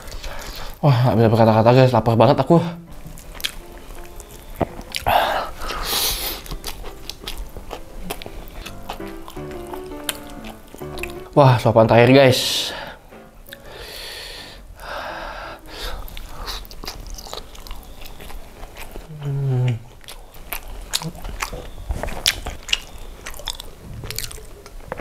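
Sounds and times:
person humming mmm: 2.6 - 11.4, 12.5 - 16.9, 19.0 - 20.0
close chewing with wet clicks: 3.0 - 11.3, 16.0 - 25.0
lip smacks: 3.0 - 11.3, 15.7 - 25.0.

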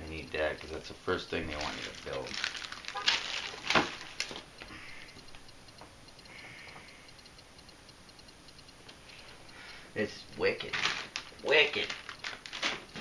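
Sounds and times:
faint regular ticking: 0.0 - 13.0
plastic bags rustling: 1.4 - 4.5, 10.5 - 13.0.

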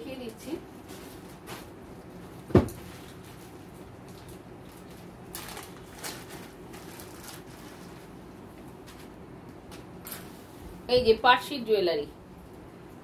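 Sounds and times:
low background hum: 0.0 - 13.0
thump: 2.5 - 2.8
plastic bag crinkling: 3.0 - 8.2.

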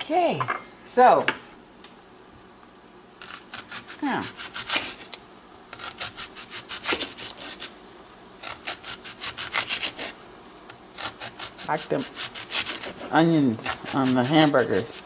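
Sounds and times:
knife sawing through onion: 3.2 - 5.1, 5.7 - 7.8, 8.4 - 10.2, 11.0 - 15.0.

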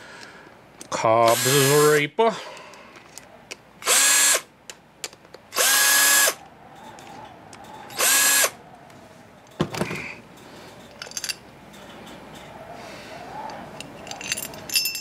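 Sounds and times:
cordless drill whirring: 1.3 - 1.9, 3.8 - 4.5, 5.5 - 6.4, 8.0 - 8.6.

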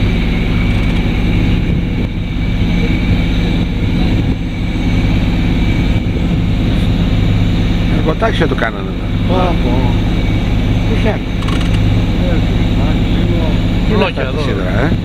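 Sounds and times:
boat engine humming: 0.0 - 15.0.

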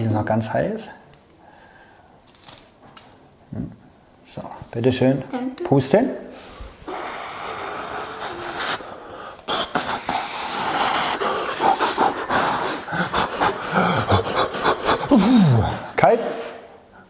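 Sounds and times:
people blowing puffs of air: 6.3 - 17.0.

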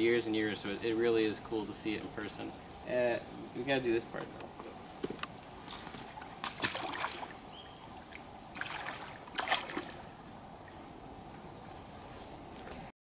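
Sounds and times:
water splashing from wading: 5.6 - 10.2.

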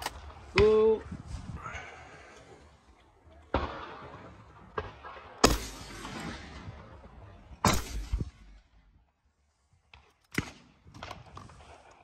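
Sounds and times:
shotgun shot: 3.5 - 6.7, 7.6 - 8.6.

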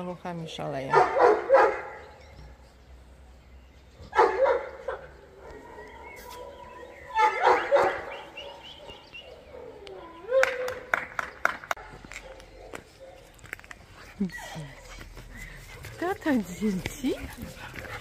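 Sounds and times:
puppies yapping: 4.1 - 11.0.

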